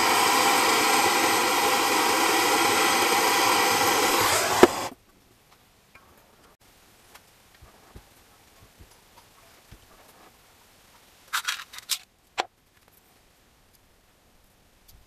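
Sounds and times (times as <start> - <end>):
metal parts clicking and clinking: 11.3 - 12.1.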